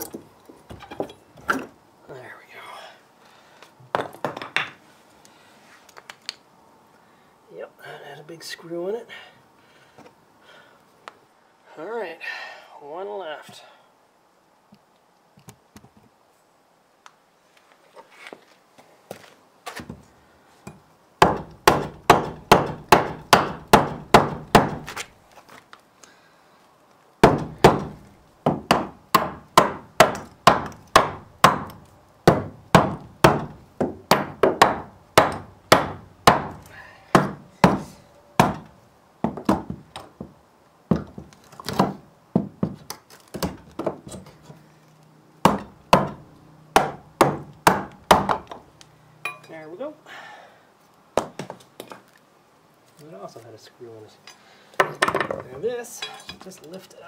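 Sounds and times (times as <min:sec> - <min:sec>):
hammer striking wooden block: 0:21.2 - 0:24.8, 0:28.5 - 0:36.6, 0:45.4 - 0:46.2, 0:46.8 - 0:48.6.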